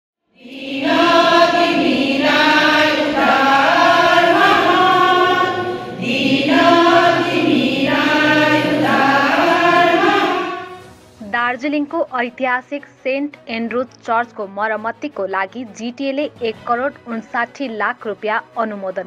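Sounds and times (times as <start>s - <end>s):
women's choir singing a hymn: 0.4s - 10.8s.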